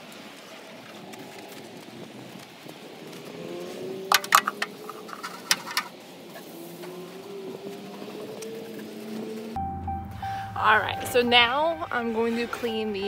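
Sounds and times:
low hum: 9.6 - 13.0.

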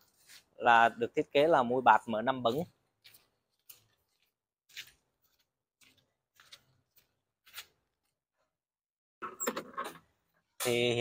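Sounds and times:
scuffs and rustles: 0.0 - 0.6.

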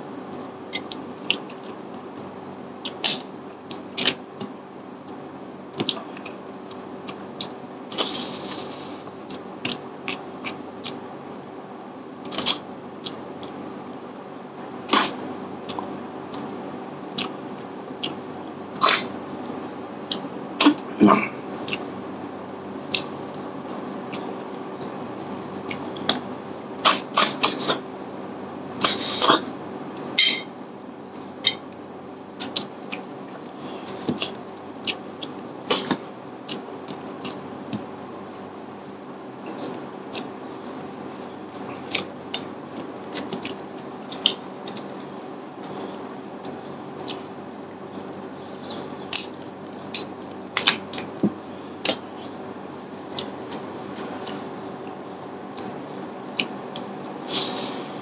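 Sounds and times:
faint steady hum: 0.0 - 58.0
slurping: 7.4 - 9.8
wet eating and chewing: 32.4 - 38.0, 39.4 - 58.0.

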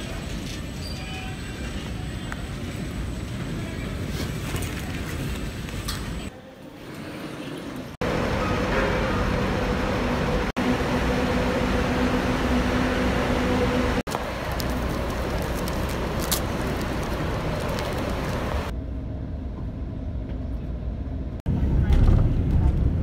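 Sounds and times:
buses running: 0.0 - 23.0
steady engine hum: 7.9 - 23.0.

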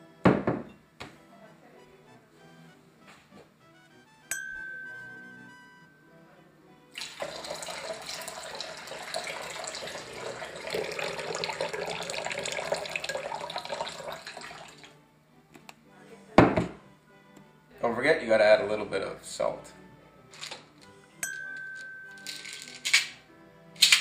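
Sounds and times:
ringing ding: 4.3 - 6.0, 21.2 - 22.2
liquid pouring and splashing: 7.0 - 14.9.

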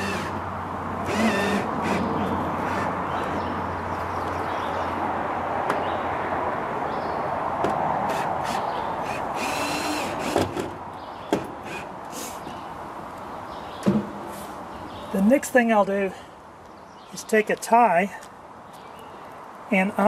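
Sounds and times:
power drill driving screw into wood: 0.0 - 0.4, 1.0 - 2.1, 8.1 - 10.7.

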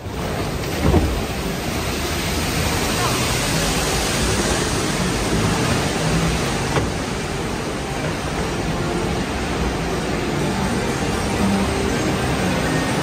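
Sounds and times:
log flume ride rushing: 0.0 - 13.0.

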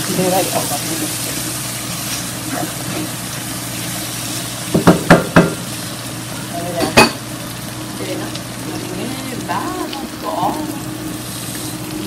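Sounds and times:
food sizzling in a pot: 0.0 - 12.0
utensil knocking against pot: 4.7 - 5.6.

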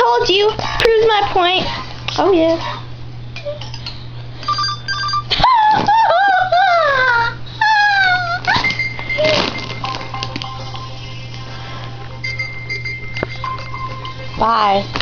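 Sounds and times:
high-pitched whimpering cries: 5.3 - 9.4.

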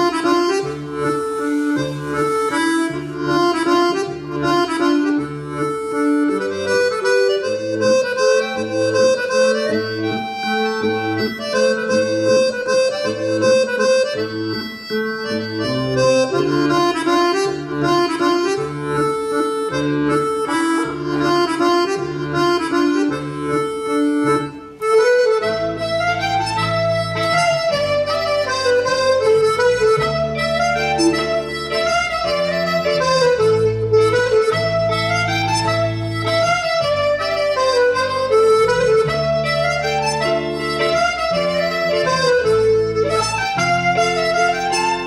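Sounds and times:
instrumental dance music: 0.0 - 45.0.

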